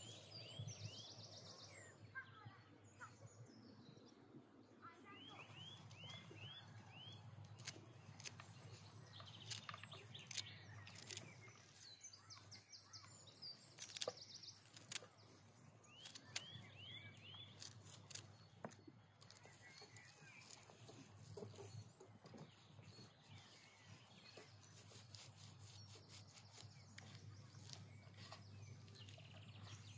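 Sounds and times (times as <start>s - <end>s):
birds chirping: 0.0s - 29.9s
small birds trilling: 0.0s - 29.9s
leaves being stripped: 5.9s - 21.8s, 23.4s - 29.9s
green stems snapping: 7.4s - 11.3s, 13.7s - 15.2s, 16.0s - 16.6s, 17.5s - 20.7s.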